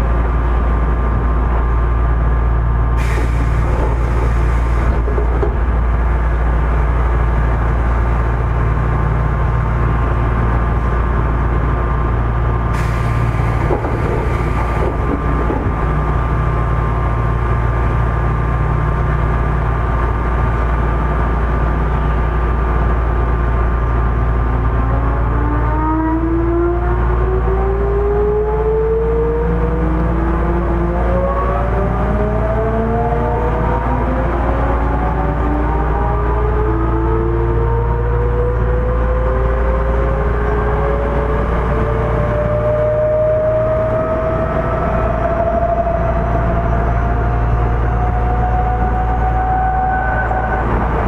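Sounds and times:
deep low rumble: 0.0s - 25.4s
train air conditioning drone: 0.0s - 51.0s
short hisses of air: 3.0s - 4.9s, 12.8s - 14.8s.

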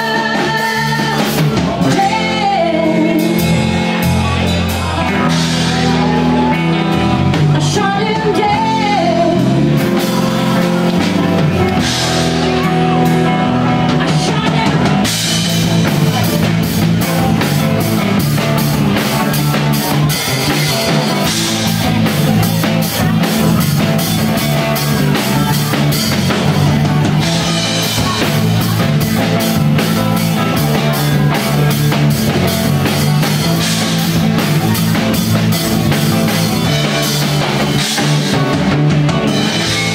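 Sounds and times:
woman singing into a microphone: 0.0s - 3.6s, 7.4s - 9.8s
drum kit: 0.0s - 39.9s
electric guitar: 0.0s - 39.9s.

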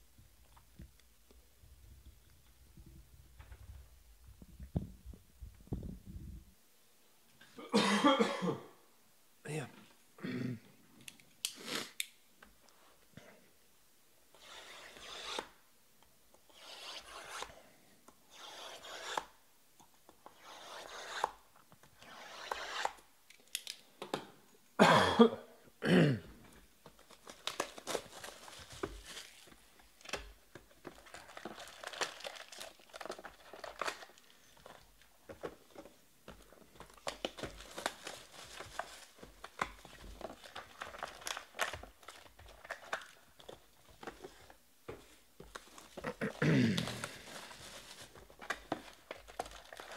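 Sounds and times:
cellophane crinkling and rustling: 26.8s - 49.9s
shrink wrap tearing: 31.0s - 34.4s.

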